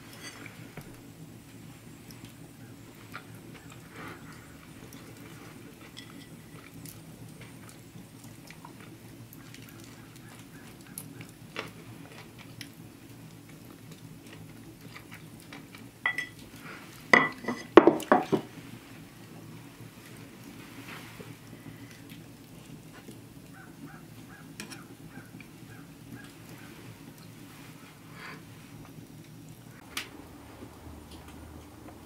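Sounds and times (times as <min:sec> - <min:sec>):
fork clinking and scraping on plate: 0:05.9 - 0:06.4.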